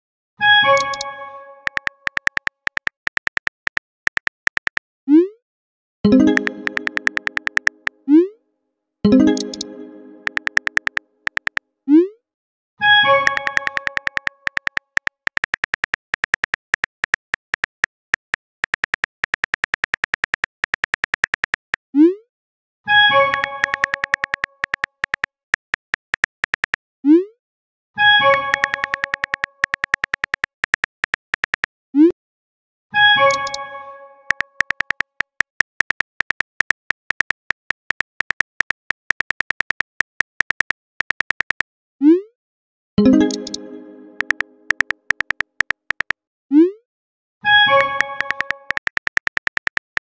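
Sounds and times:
phone keyboard typing clicks: 0.7 - 4.8, 6.1 - 7.9, 9.1 - 11.6, 13.2 - 21.8, 23.2 - 26.8, 28.3 - 31.7, 33.2 - 33.6, 34.3 - 41.7, 43.0 - 46.2, 47.7 - 50.0.

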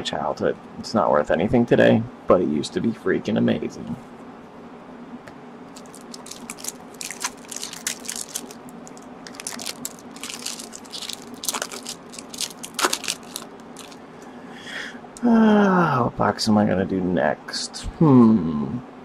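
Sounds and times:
foil tearing: 5.7 - 14.0
foil wrapper crinkling: 5.7 - 14.0.

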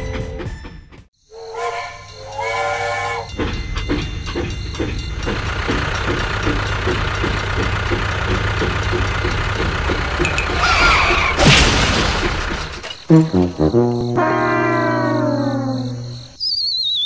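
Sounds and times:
toy train electronic whistle: 1.3 - 3.4, 14.1 - 17.0
toy train chugging sound effect: 1.3 - 11.3.

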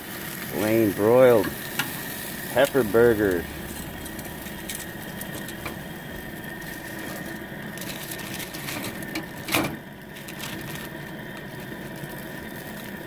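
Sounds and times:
meat sizzling on a grill: 0.0 - 13.0
fat crackling: 0.2 - 13.0.

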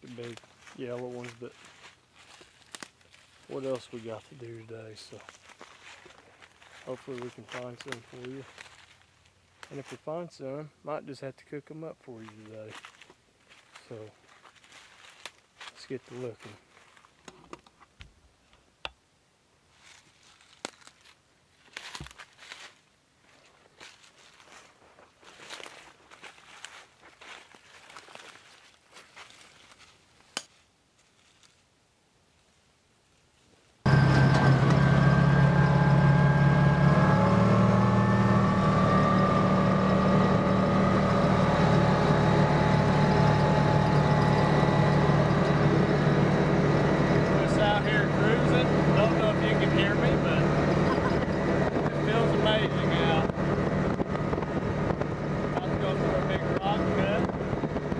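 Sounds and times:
footsteps crunching through leaves: 0.0 - 10.0, 12.2 - 17.2, 19.7 - 30.4, 31.0 - 31.6
utility vehicle engine running: 33.9 - 57.9.

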